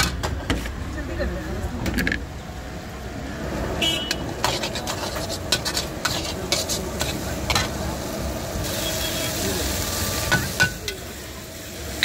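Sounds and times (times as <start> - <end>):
food sizzling: 2.2 - 12.0
metal spatula scraping a wok: 4.2 - 7.8.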